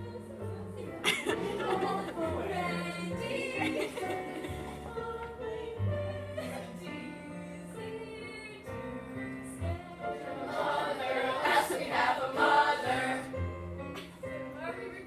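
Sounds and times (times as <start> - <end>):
music with singing voices: 0.0 - 15.0.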